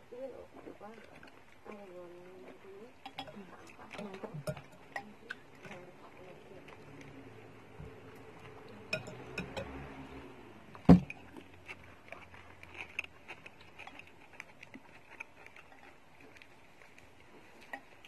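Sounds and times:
cutlery clinking on soup bowl: 0:03.0 - 0:05.4, 0:08.8 - 0:09.8.

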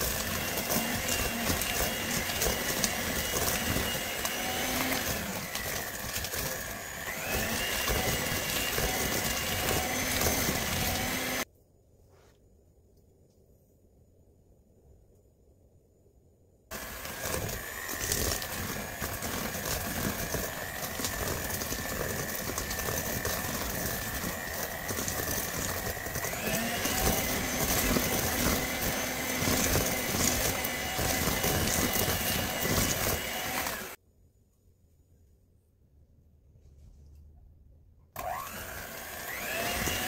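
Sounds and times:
electric hand mixer whining: 0:00.0 - 0:11.5, 0:16.7 - 0:34.0, 0:38.2 - 0:40.0.

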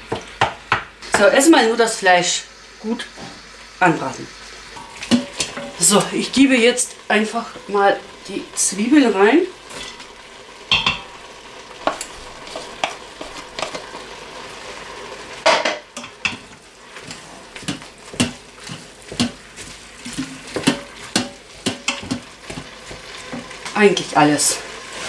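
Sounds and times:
meat and onion sizzling: 0:00.0 - 0:25.0
wooden spoon scraping a pot: 0:11.8 - 0:13.9, 0:16.0 - 0:24.2.

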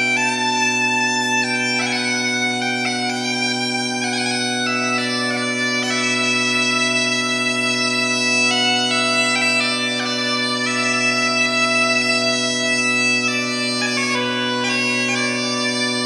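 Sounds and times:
bagpipe melody over drone: 0:00.0 - 0:16.0.

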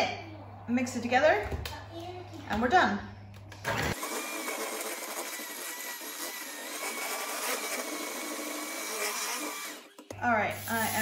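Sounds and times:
electric hand mixer whining: 0:03.9 - 0:11.0.

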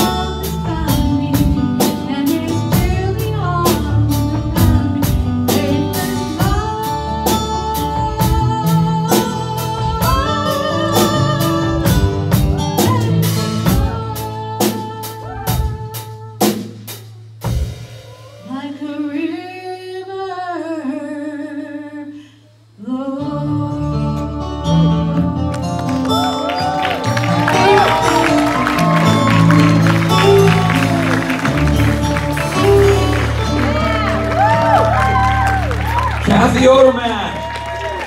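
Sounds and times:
woman singing: 0:00.0 - 0:16.6, 0:18.4 - 0:35.6
drums steady beat: 0:00.0 - 0:18.5, 0:26.4 - 0:37.3
live band playing: 0:00.0 - 0:18.8, 0:24.2 - 0:38.0.

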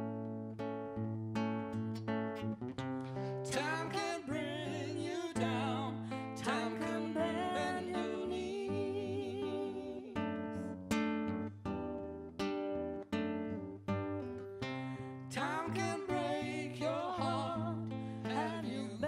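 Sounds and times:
acoustic guitar strumming: 0:00.0 - 0:19.0
person singing: 0:03.3 - 0:10.7, 0:15.0 - 0:19.0.

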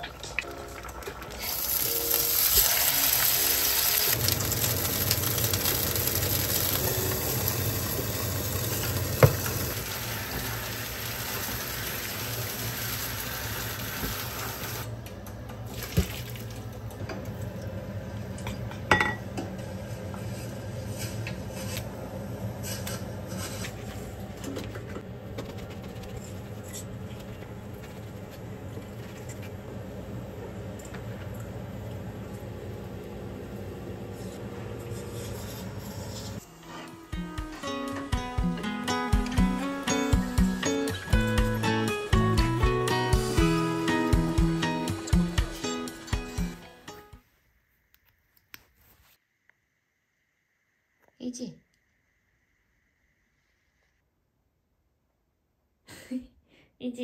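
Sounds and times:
water pouring into a sink: 0:00.3 - 0:14.8
steak sizzling in a pan: 0:01.4 - 0:14.8.

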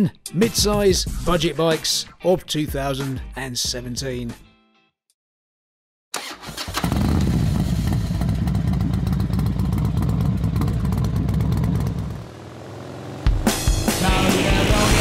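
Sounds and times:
motorcycle engine running: 0:06.7 - 0:15.0.

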